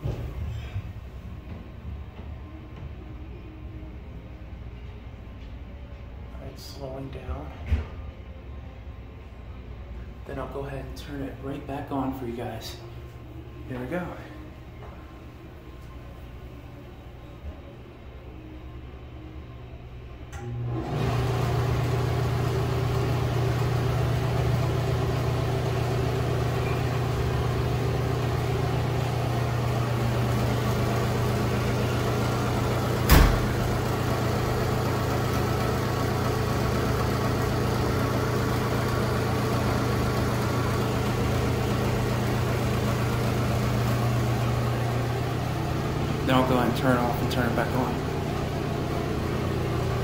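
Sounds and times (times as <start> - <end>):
exhaust fan humming and rattling: 20.0 - 50.0.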